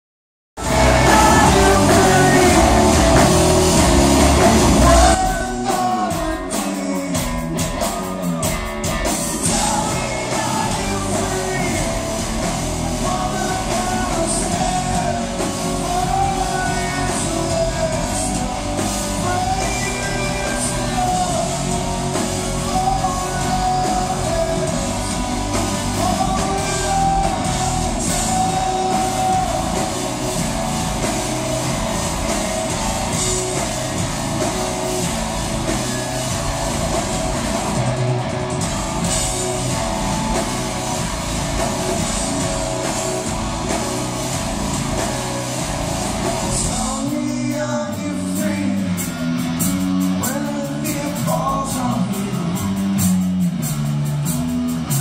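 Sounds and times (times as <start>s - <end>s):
man singing lead: 0.6s - 36.2s, 46.3s - 53.2s
drum kit: 0.6s - 55.0s
electric guitar: 0.6s - 55.0s.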